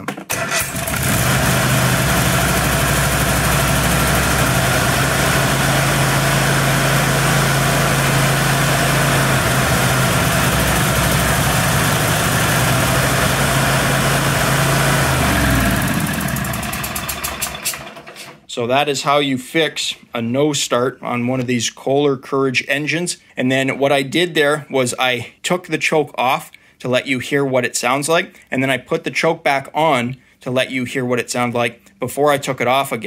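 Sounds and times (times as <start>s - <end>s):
lawn mower engine starting and running: 0.2s - 18.5s.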